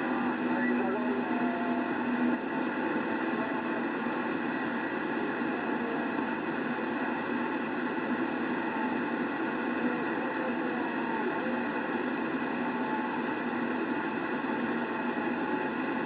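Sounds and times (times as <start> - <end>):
radio static and hiss: 0.0 - 16.0
faint interference whistles: 0.5 - 1.1.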